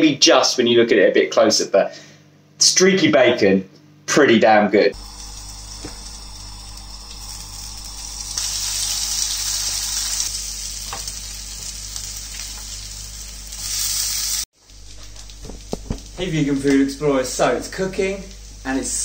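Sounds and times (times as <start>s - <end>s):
bacon sizzling in a pan: 5.0s - 19.0s.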